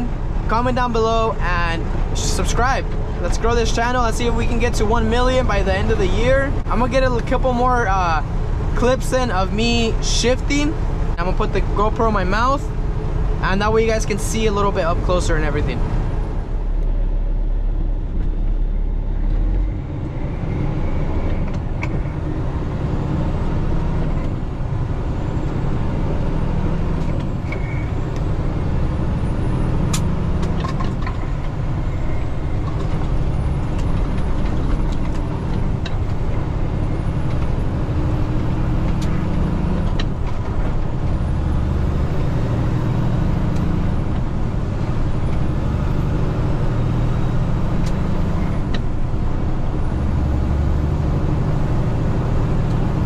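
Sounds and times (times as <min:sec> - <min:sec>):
truck engine drone: 0:00.0 - 0:53.0.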